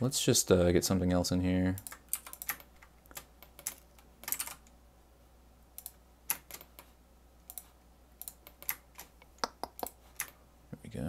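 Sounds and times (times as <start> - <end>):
keystrokes on computer keyboard: 1.8 - 4.7, 5.8 - 6.9, 7.5 - 10.4.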